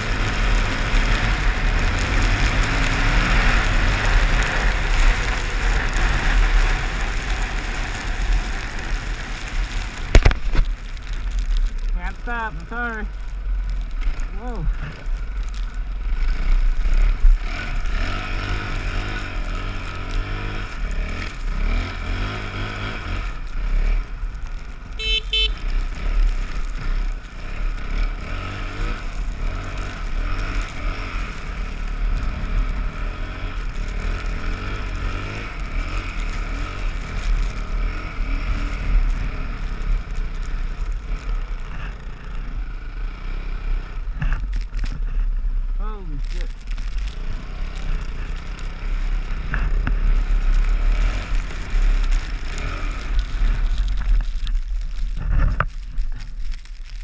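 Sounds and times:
dirt bike engine revving: 0:00.0 - 0:10.1, 0:16.0 - 0:24.2, 0:25.0 - 0:40.1
deep rumble: 0:00.0 - 0:57.0.

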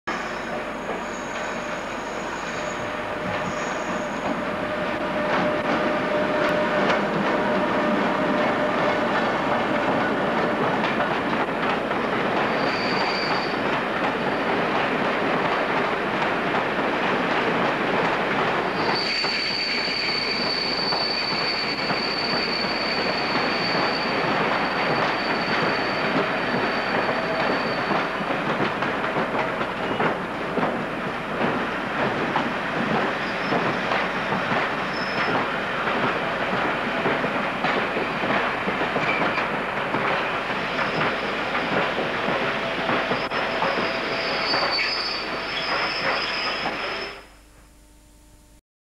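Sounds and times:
high wheel squeal: 0:00.1 - 0:09.2, 0:12.5 - 0:13.6, 0:18.8 - 0:28.1, 0:33.1 - 0:34.0, 0:34.9 - 0:35.4, 0:43.1 - 0:47.3
train rumble and wheel clatter: 0:00.1 - 0:47.2.

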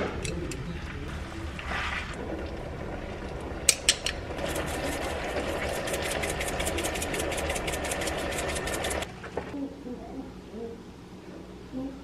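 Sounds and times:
pepper mill grinding: 0:03.9 - 0:09.1.

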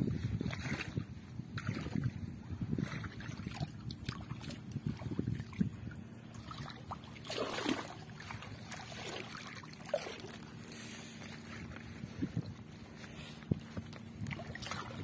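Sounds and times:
water splashing and dripping: 0:03.1 - 0:10.7, 0:13.9 - 0:15.0.

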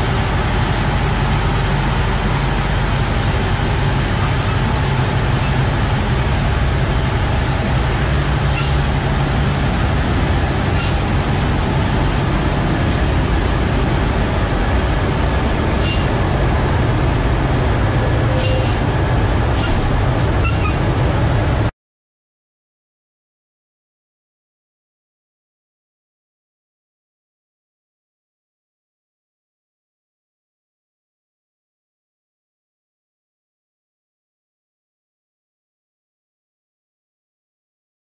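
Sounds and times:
truck diesel engine running: 0:00.0 - 0:21.7
air brake hisses: 0:08.5 - 0:08.9, 0:10.8 - 0:11.1, 0:15.8 - 0:16.2, 0:18.3 - 0:18.8.

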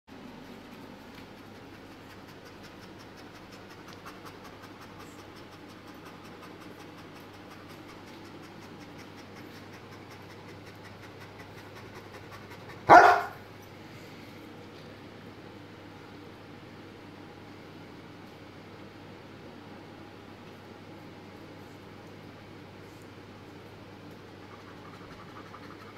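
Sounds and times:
large dog panting: 0:00.1 - 0:13.4, 0:24.2 - 0:25.9
dog barking loudly: 0:12.9 - 0:13.4.

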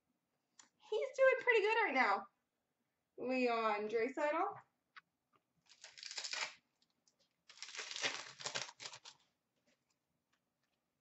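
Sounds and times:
card pack wrapper tearing: 0:05.7 - 0:06.9, 0:07.5 - 0:09.3.

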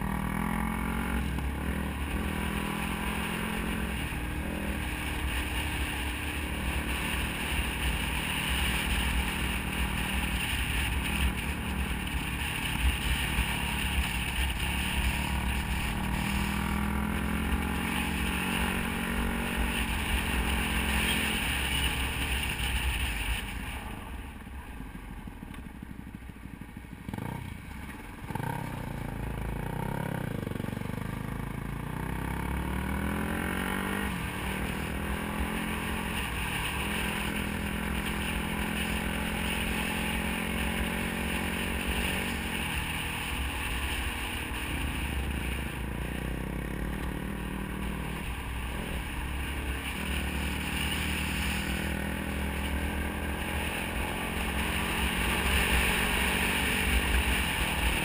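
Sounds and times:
dirt bike engine revving: 0:00.0 - 0:23.0, 0:32.0 - 0:58.0.

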